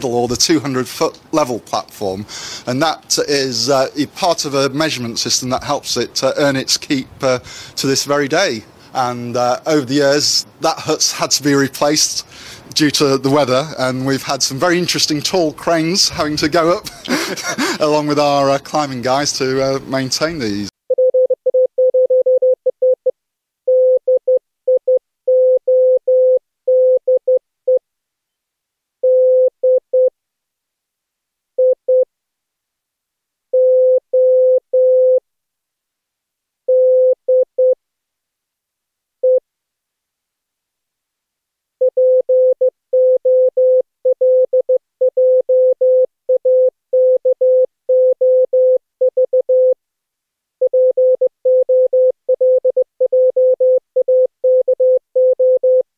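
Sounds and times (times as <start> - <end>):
morse code beeps: 20.9 - 23.0, 33.6 - 35.2, 41.8 - 49.8, 50.6 - 55.8.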